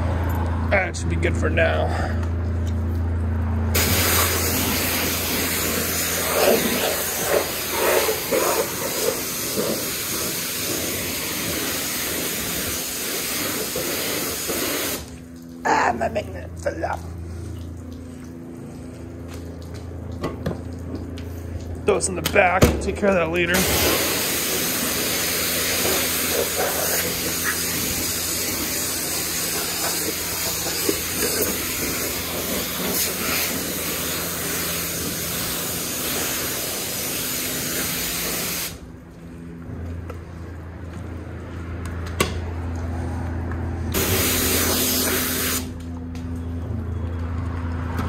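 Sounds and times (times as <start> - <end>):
steady low hum: 0.0 - 47.8
high-pressure water spray hissing: 3.8 - 15.2, 23.5 - 38.8, 43.9 - 45.8.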